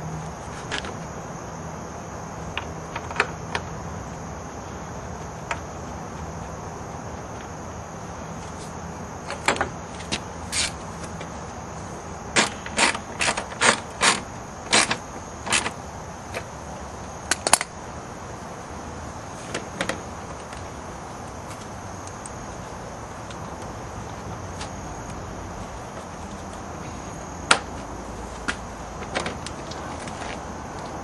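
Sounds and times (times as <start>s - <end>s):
hand tool and fastener clicks: 12.4s - 15.7s.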